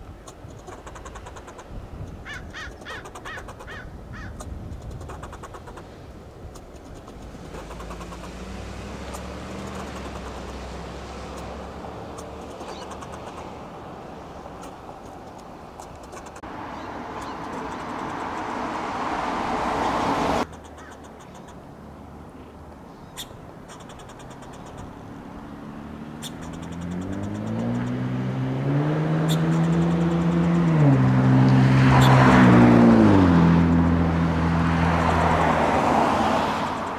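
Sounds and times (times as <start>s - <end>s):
car passing: 5.0s - 36.9s
vehicle engine accelerating: 6.7s - 20.5s, 23.8s - 36.9s.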